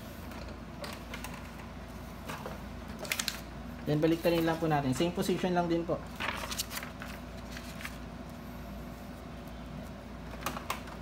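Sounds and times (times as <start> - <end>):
steady low hum: 0.0 - 11.0
paper rustling: 6.1 - 8.1.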